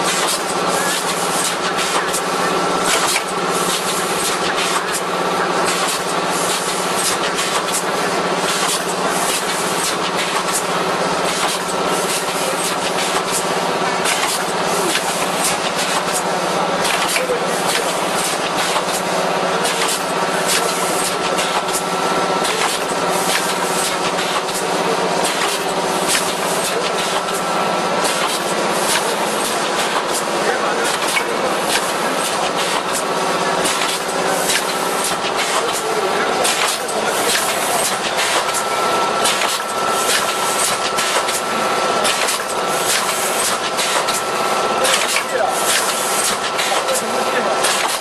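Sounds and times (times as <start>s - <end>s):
machine humming: 0.0s - 48.0s
mechanical noise: 0.0s - 48.0s
mechanical clatter of quick clicks: 39.2s - 41.4s, 42.0s - 44.2s, 47.6s - 48.0s.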